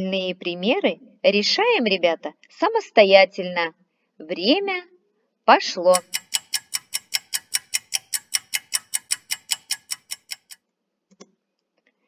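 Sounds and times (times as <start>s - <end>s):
clock ticking fast: 5.9s - 10.6s.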